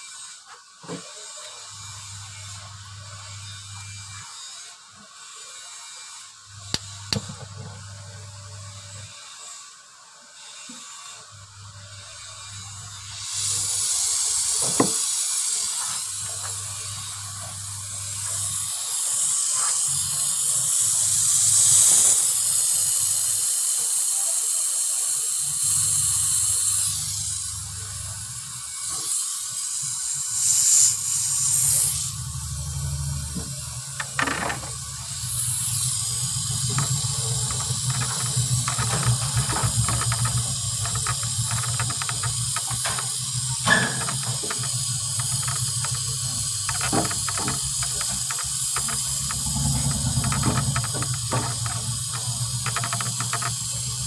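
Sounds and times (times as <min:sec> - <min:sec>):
gas hissing: 0:06.7 - 0:08.5, 0:13.0 - 0:23.4, 0:25.5 - 0:54.0
low hum: 0:32.0 - 0:54.0.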